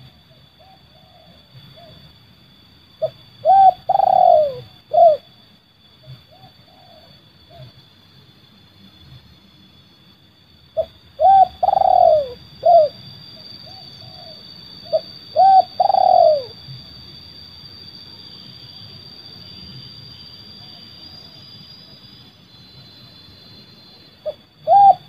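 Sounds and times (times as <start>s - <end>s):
dove cooing: 0.0s - 2.0s, 3.0s - 5.2s, 6.2s - 7.7s, 10.8s - 13.0s, 13.6s - 16.6s, 24.2s - 25.0s.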